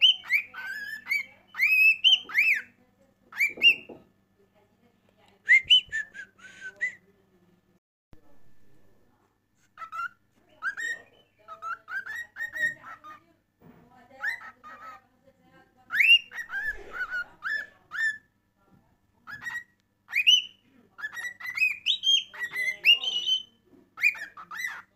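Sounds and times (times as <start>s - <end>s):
cockatiel whistling: 0.0s - 2.7s, 3.4s - 4.0s, 9.8s - 13.0s, 15.9s - 18.2s, 19.3s - 24.9s.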